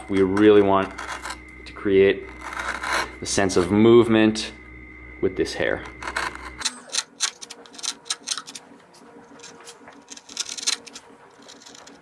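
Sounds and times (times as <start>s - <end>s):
gouge scraping wood: 0.4s - 1.5s, 2.2s - 3.8s, 9.4s - 12.0s.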